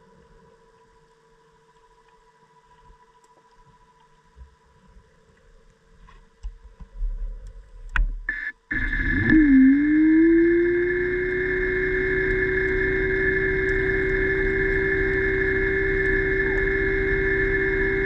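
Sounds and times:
faint steady underwater whine: 0.0 - 18.0
low rumbling: 6.6 - 18.0
motor spinning up: 8.7 - 18.0.

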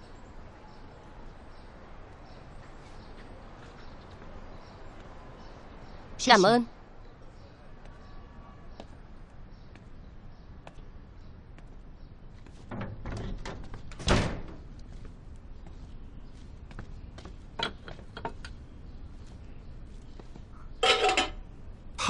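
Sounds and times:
door shutting with a thud: 12.6 - 14.7.

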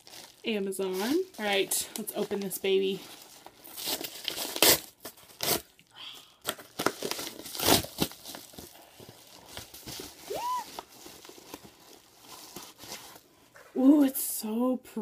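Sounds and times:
paper envelope ripping: 3.6 - 5.7, 6.4 - 8.6
high-pitched vocal squeak: 10.3 - 10.7.

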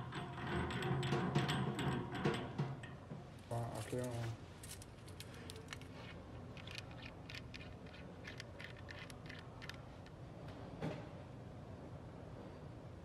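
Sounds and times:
metal fittings clicking: 5.2 - 10.1.

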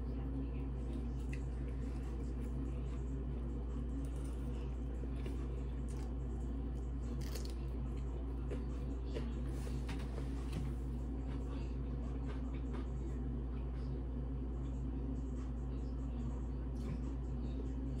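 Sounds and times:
chewing and crunching: 0.0 - 9.9
low hum: 0.0 - 18.0.

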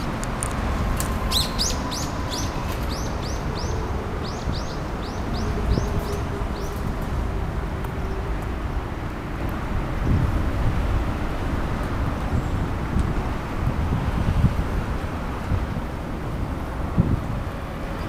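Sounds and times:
songbird chirping: 0.0 - 6.8
traffic rumble: 0.0 - 18.0
wind: 0.0 - 18.0.

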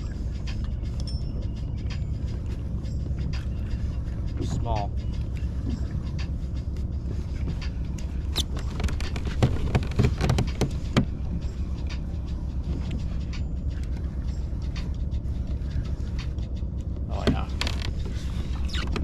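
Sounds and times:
steady low rumble: 0.0 - 19.0
fishing tackle clicks and knocks: 6.7 - 15.0.

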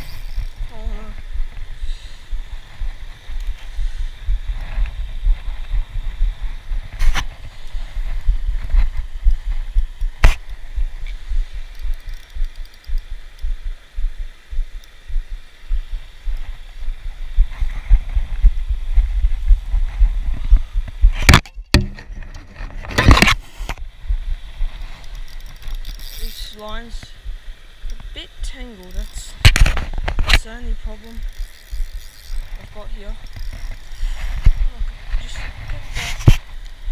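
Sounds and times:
wind buffeting microphone: 0.0 - 21.7.

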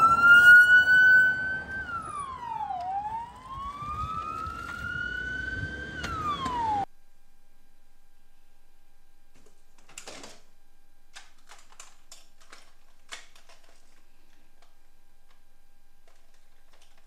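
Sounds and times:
plastic toys clicking and rattling: 9.4 - 10.5, 11.2 - 15.4, 16.1 - 17.0.

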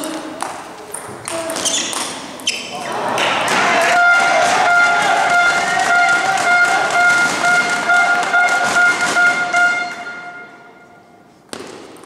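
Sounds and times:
crowd noise: 0.0 - 11.5
rhythmic clapping: 3.2 - 10.2
table tennis ball striking table: 3.2 - 10.2, 11.5 - 12.0
horn long held note: 3.9 - 11.2.

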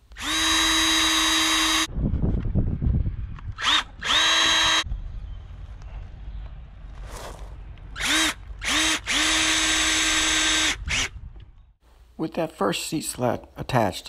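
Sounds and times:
cordless drill running: 0.1 - 1.9, 3.6 - 4.8, 8.0 - 11.1.

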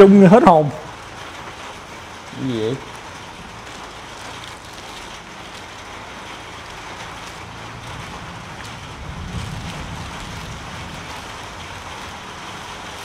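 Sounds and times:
steady rain hiss: 0.0 - 13.0
low rumble: 6.6 - 13.0.

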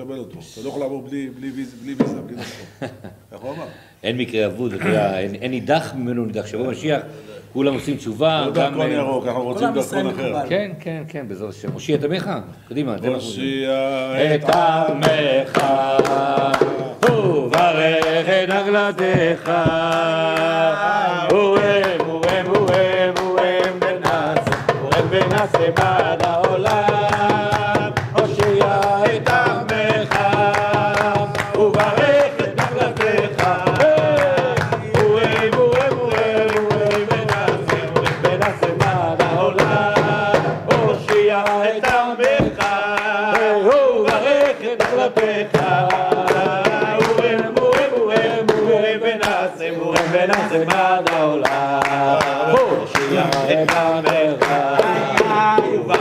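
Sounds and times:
men singing in unison: 7.8 - 10.4, 13.0 - 56.0
hand clapping: 14.4 - 56.0
hand drum beating: 18.9 - 20.4, 21.2 - 43.4, 44.0 - 49.4.

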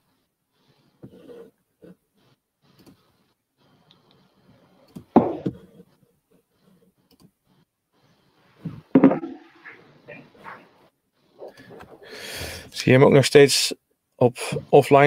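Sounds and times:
thumps on desk: 8.7 - 9.5.

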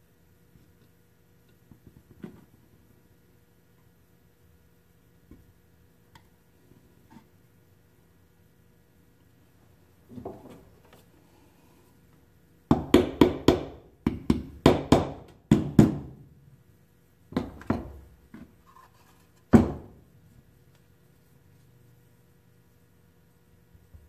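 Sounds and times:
hammer knocking on wooden boards: 12.7 - 16.2, 19.5 - 20.0.

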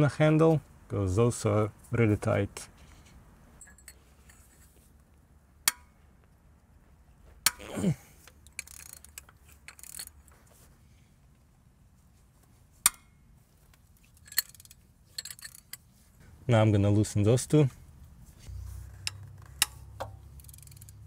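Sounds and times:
wrench clinking metal: 3.6 - 4.6, 8.4 - 10.2, 14.0 - 15.8, 19.0 - 21.0.

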